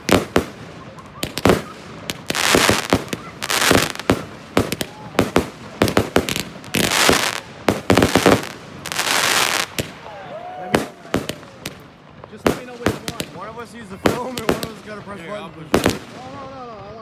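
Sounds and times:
fireworks crackling hiss: 0.0s - 16.7s
fireworks bangs: 0.0s - 17.0s.

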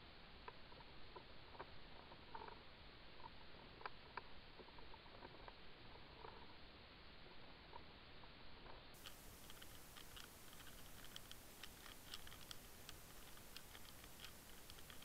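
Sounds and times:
low hiss: 0.0s - 15.0s
underwater clicking and ticking: 9.0s - 15.0s.

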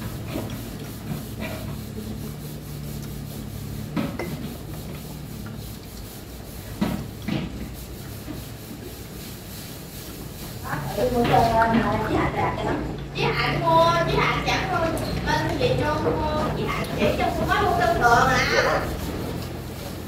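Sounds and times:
dishes and utensils clinking: 3.9s - 4.9s.

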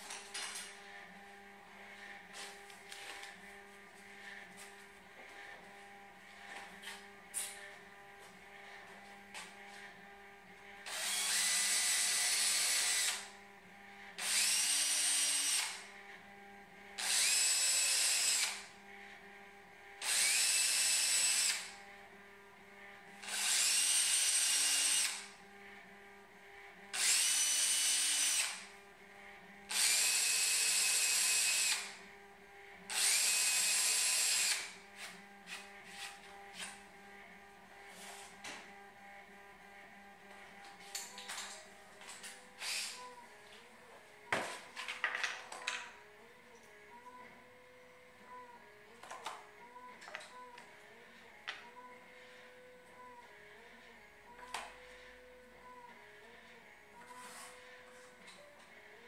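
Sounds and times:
cordless drill motor whine: 0.0s - 44.9s.

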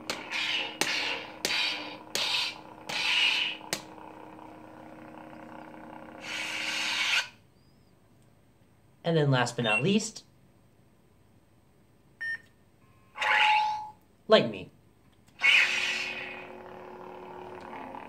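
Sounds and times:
lightsaber swing and clash: 0.0s - 3.6s
lightsaber hum: 0.0s - 7.9s, 15.3s - 18.0s
lightsaber power-down: 0.1s - 4.0s, 15.4s - 18.0s.

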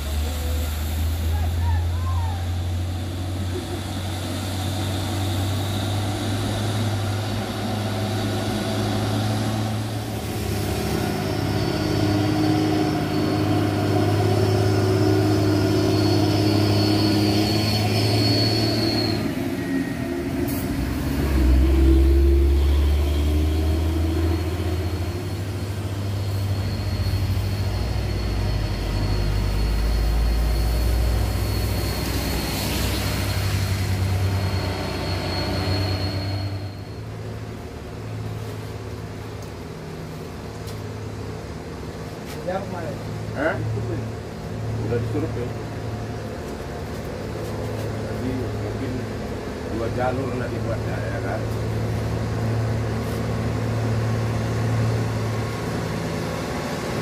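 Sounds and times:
thin high whine: 0.0s - 38.6s
diesel truck engine labouring: 0.0s - 57.0s.

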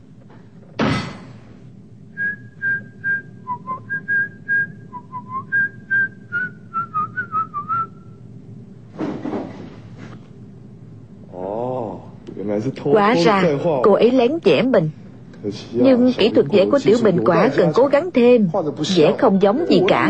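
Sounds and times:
person whistling a tune: 2.2s - 8.1s.

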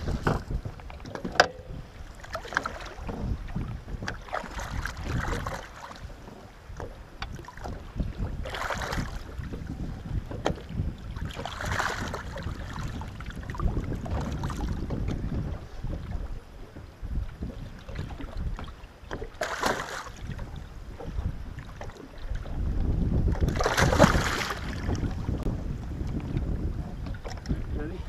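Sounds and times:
water sloshing against boat: 0.0s - 28.0s
wind rumbling on microphone: 0.0s - 28.0s
loud splashes: 19.4s - 20.1s, 23.5s - 24.8s.

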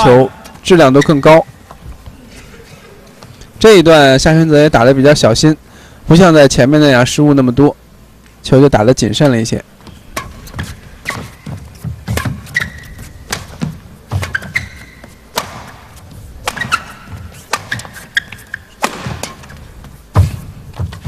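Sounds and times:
shoes squeaking on court: 0.4s - 3.5s, 9.7s - 21.0s
footwork thuds: 9.7s - 21.0s
racket striking shuttlecock: 9.8s - 21.0s.

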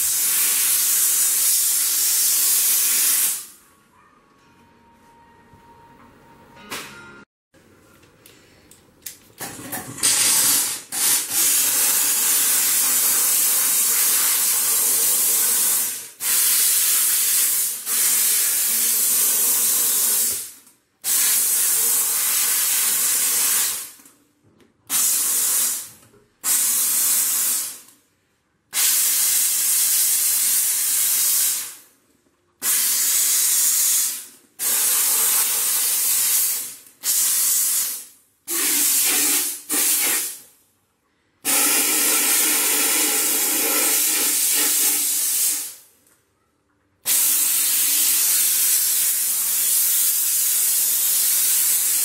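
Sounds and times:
steam cleaner hissing: 0.0s - 3.5s, 10.0s - 23.9s, 24.9s - 27.8s, 28.8s - 31.8s, 32.6s - 40.4s, 41.4s - 45.8s, 47.1s - 52.0s.

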